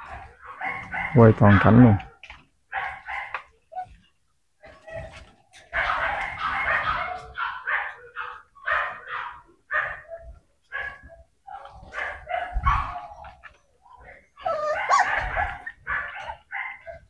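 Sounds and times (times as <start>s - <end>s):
dogs barking: 0.0s - 4.0s, 4.7s - 17.0s.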